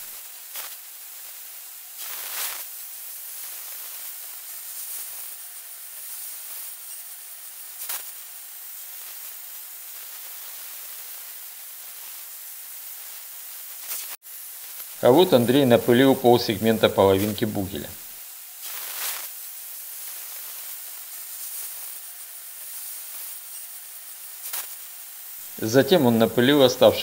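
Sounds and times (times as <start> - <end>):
spray gun hissing: 0.0 - 27.0.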